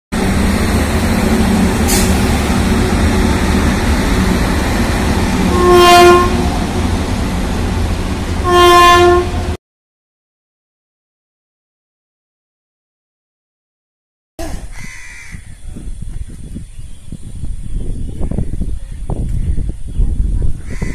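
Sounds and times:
train wheels rumbling on rails: 0:00.1 - 0:08.5
locomotive horn blasts: 0:05.3 - 0:06.8, 0:08.4 - 0:09.6.

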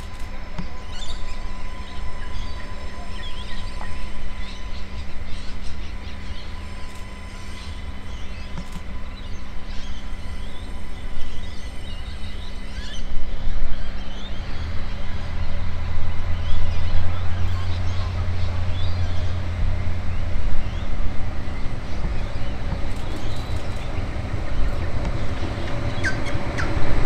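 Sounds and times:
diesel railcar engine rumble: 0:00.0 - 0:27.0.

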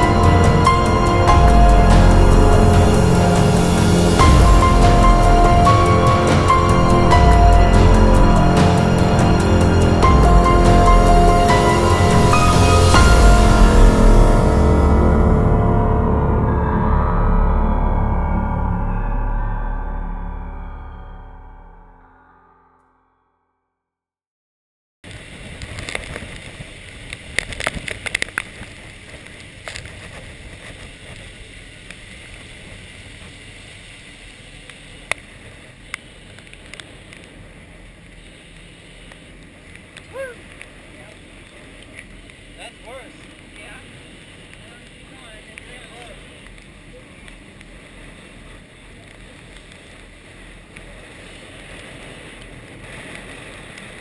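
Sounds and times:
rain tapping on camera: 0:25.1 - 0:54.0
faint ticks: 0:38.0 - 0:42.4.

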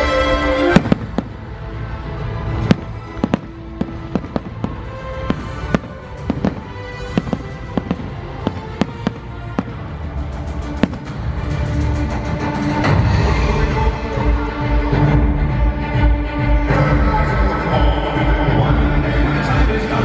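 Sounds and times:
music soundtrack: 0:00.0 - 0:20.0
fireworks bursting: 0:00.7 - 0:11.9.

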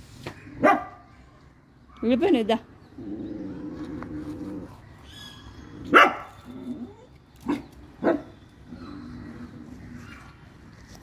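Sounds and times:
dog barking: 0:00.6 - 0:01.0, 0:05.9 - 0:06.4, 0:07.5 - 0:08.3
dog growling: 0:02.9 - 0:04.8, 0:08.7 - 0:10.2.

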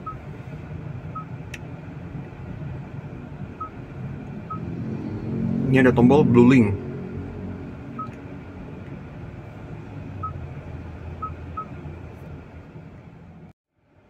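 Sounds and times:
low cabin hum: 0:00.0 - 0:13.5
touchscreen beeps: 0:08.0 - 0:08.2.

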